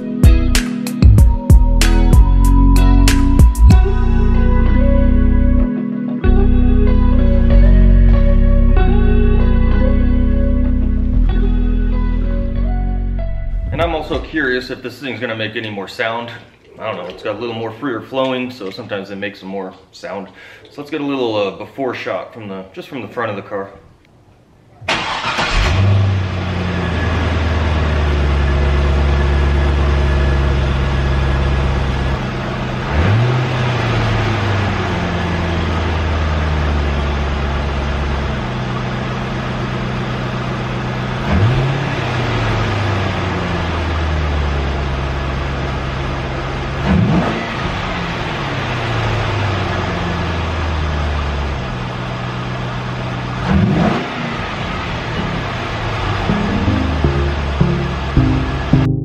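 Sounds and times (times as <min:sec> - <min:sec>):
car engine starting: 0:06.3 - 0:14.8, 0:24.9 - 0:59.0
engine revving: 0:24.9 - 0:37.7, 0:40.8 - 0:44.7, 0:46.6 - 0:51.0, 0:53.2 - 0:56.5
car engine idling: 0:47.5 - 0:53.4, 0:54.4 - 0:58.7.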